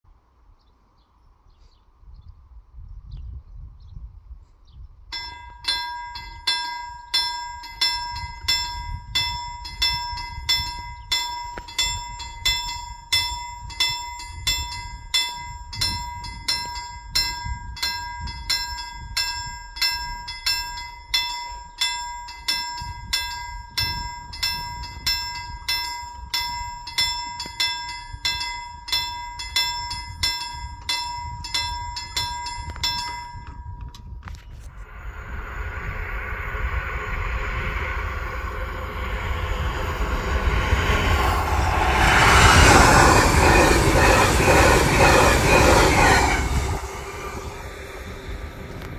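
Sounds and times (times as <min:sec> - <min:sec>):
level crossing warning bell: 0:05.2 - 0:34.2.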